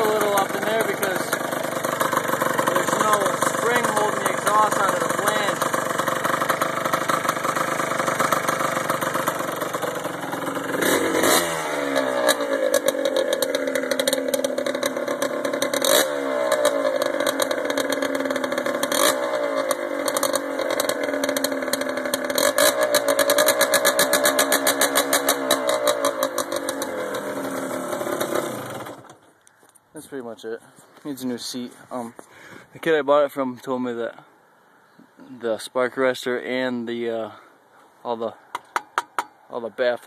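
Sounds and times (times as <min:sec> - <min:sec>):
two-stroke engine revving: 0:00.0 - 0:29.2.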